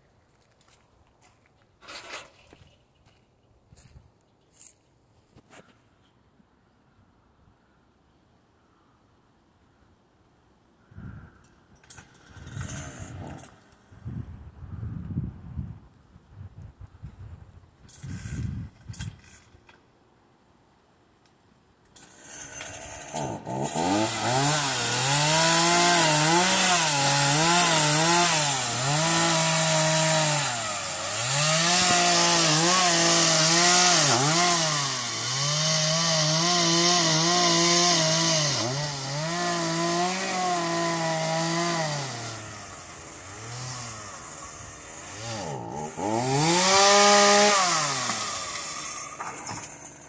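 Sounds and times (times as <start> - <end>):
chainsaw cutting wood: 11.8 - 13.8, 21.9 - 50.0.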